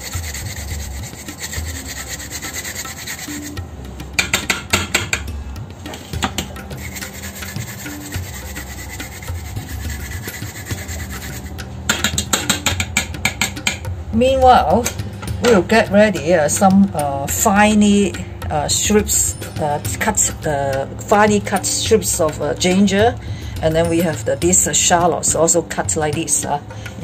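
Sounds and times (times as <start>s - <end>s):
ginger grated on a grater: 0.0s - 3.6s, 6.5s - 11.6s
sharp knocks: 4.1s - 6.9s, 11.9s - 14.0s.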